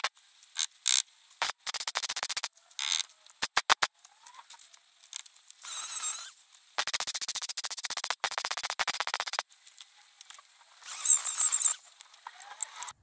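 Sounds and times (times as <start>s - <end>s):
welder crackling: 0.0s - 13.0s
grinder against metal: 10.8s - 11.8s.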